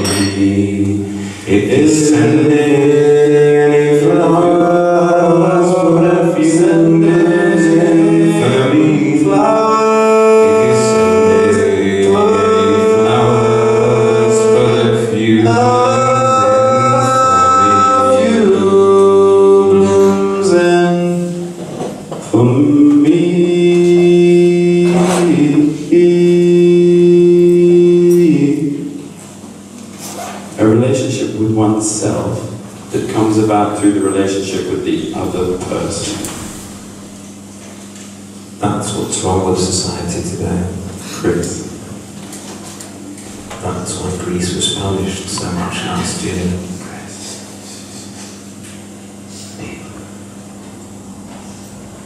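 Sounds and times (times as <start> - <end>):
men chanting held tones: 0.0 - 21.6, 22.3 - 29.1.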